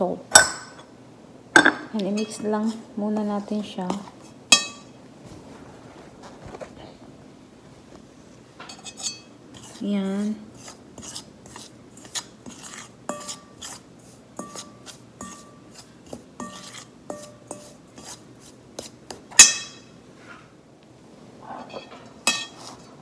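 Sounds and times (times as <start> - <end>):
spoon stirring dry flour: 2.0 - 4.9, 8.7 - 19.9, 22.2 - 23.0
spoon knocking metal bowl: 4.5 - 4.9, 19.3 - 19.9.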